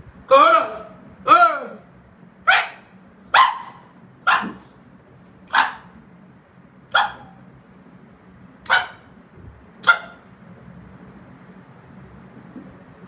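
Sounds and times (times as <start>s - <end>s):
dog barking: 2.5s - 4.7s, 5.5s - 6.0s, 6.9s - 7.4s, 8.6s - 9.1s, 9.8s - 10.2s.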